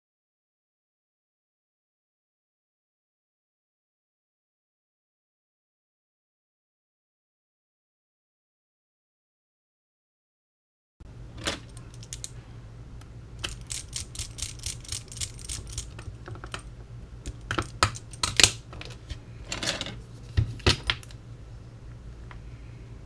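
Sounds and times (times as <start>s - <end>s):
steady low hum: 11.0s - 23.0s.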